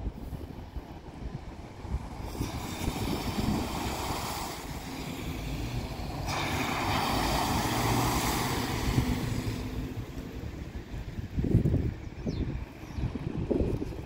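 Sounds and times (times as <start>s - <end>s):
low engine hum: 0.0s - 14.0s
tyres splashing through floodwater: 0.6s - 11.5s.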